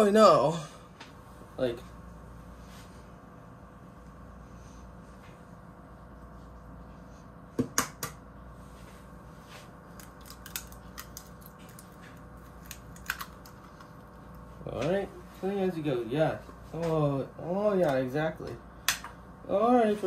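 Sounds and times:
eggshell clicks and crackles: 9.9s - 14.4s.

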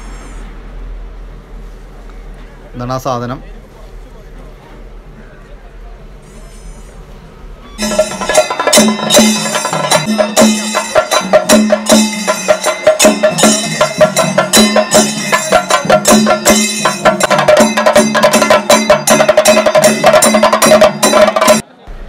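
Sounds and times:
drums beaten with sticks: 7.8s - 21.7s.

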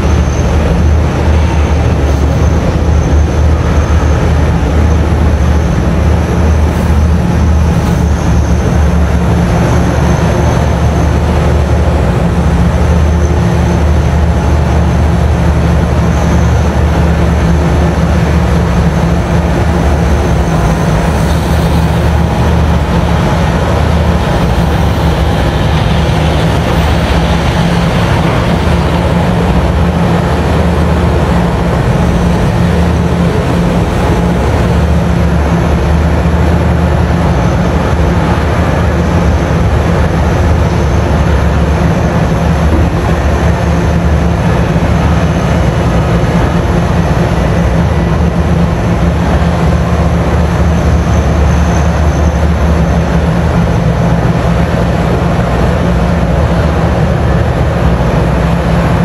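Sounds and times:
deep engine drone: 0.0s - 59.0s.

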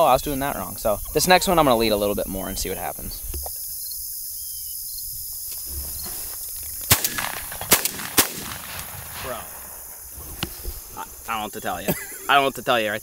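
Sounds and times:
shotgun shots: 6.9s - 10.0s.

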